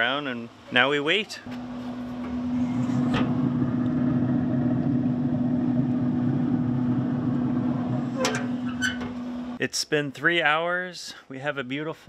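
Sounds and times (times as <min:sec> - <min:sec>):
grill fan humming and whooshing: 0:00.8 - 0:09.6.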